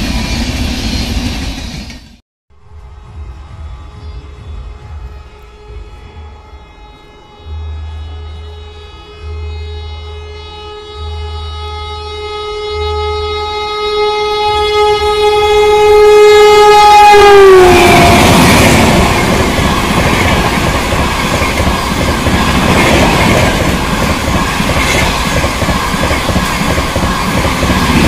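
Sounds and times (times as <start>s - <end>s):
locomotive horn blast: 2.6s - 20.7s
train coaches rushing past: 15.0s - 28.0s.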